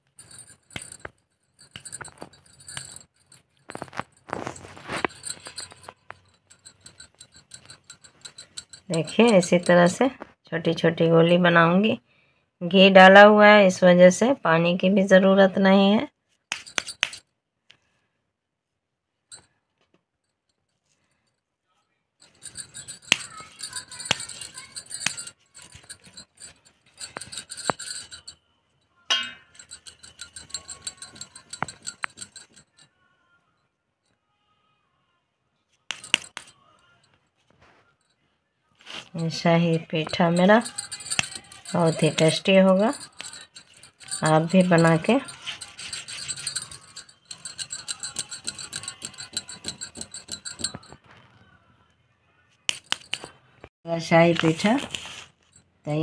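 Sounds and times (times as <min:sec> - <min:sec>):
rhythmic metallic jingling: 0:00.0 - 0:10.1, 0:16.5 - 0:17.2, 0:22.2 - 0:28.4, 0:29.1 - 0:32.9, 0:35.9 - 0:36.7, 0:38.9 - 0:51.0, 0:52.7 - 0:53.4.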